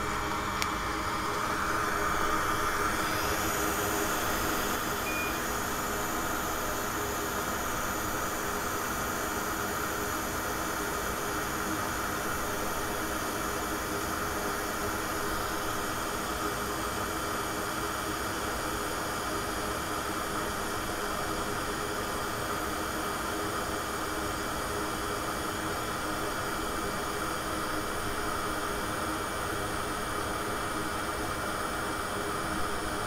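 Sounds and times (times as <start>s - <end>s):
faint hum tones: 0.0s - 11.6s.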